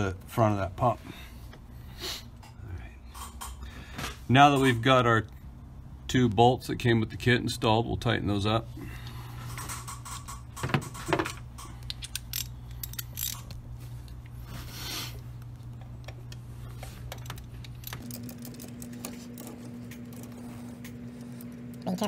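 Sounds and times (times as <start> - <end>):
steady low hum: 0.0 - 22.0
hand ratchet clicking: 11.6 - 13.6.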